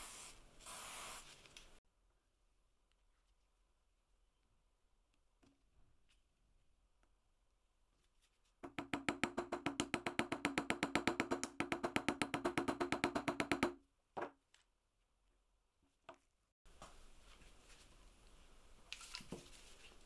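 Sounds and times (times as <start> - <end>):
hammer tapping on steel anvil: 8.6 - 13.8.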